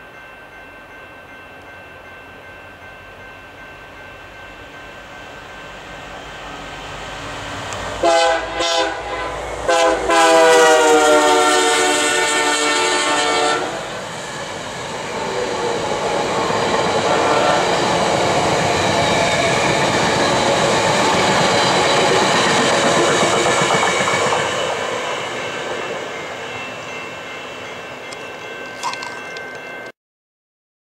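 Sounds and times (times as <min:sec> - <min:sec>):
train horn blasts: 0:08.0 - 0:13.9, 0:17.0 - 0:17.8
train cars rumbling and clattering: 0:13.8 - 0:26.1.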